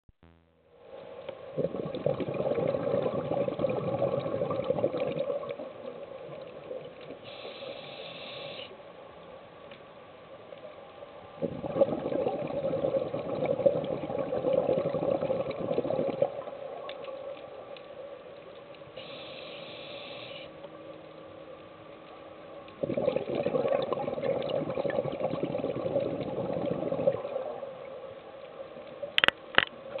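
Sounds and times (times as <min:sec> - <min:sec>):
exhaled bubbles gurgling underwater: 0:01.5 - 0:08.5, 0:11.4 - 0:17.8, 0:22.7 - 0:29.1
regulator hissing inhalations: 0:07.2 - 0:08.8, 0:19.0 - 0:20.5.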